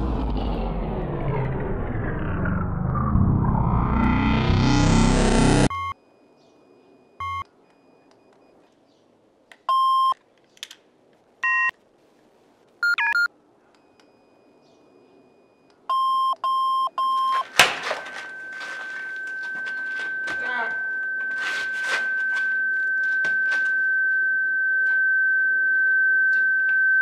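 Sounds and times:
electronic beeps: 0:02.2 - 0:08.7, 0:12.8 - 0:17.5
high ringing tone: 0:16.9 - 0:27.0.

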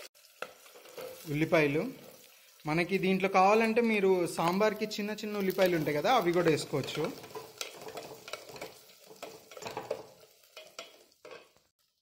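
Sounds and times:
onions sizzling in oil: 0:00.0 - 0:12.0
spatula scraping pot: 0:06.2 - 0:11.6.

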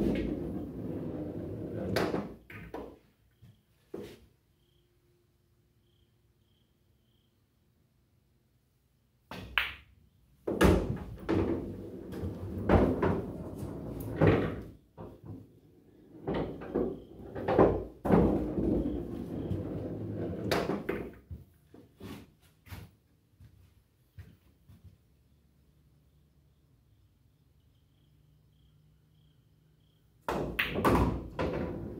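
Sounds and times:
ball rolling through return channel: 0:00.0 - 0:02.8, 0:11.0 - 0:21.1, 0:30.3 - 0:31.9.

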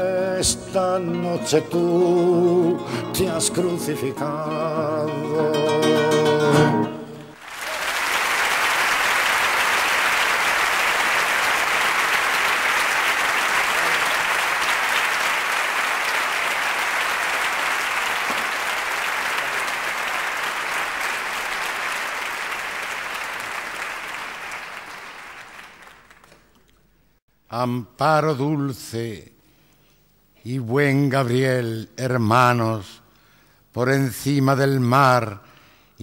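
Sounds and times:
audience applauding: 0:07.2 - 0:26.6.

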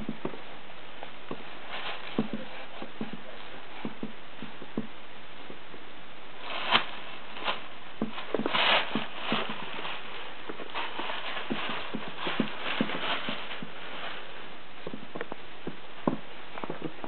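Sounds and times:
rustle: 0:00.0 - 0:17.0
steady hiss: 0:00.0 - 0:17.0
hands tapping on furniture: 0:03.8 - 0:04.9.

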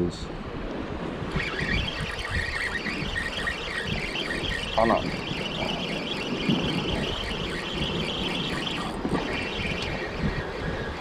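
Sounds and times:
wind: 0:00.0 - 0:11.0
spinning reel cranking: 0:01.4 - 0:11.0.

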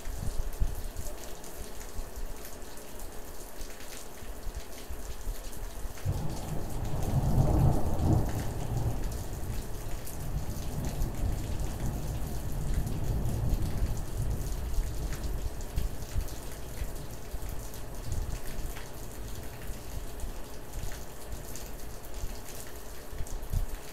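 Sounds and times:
steady rain: 0:00.0 - 0:23.9
thunder rumbling: 0:06.0 - 0:16.3.

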